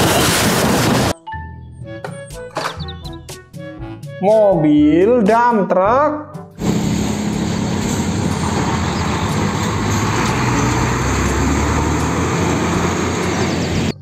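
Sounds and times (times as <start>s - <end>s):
trucks driving by: 0.0s - 1.2s, 6.5s - 14.0s.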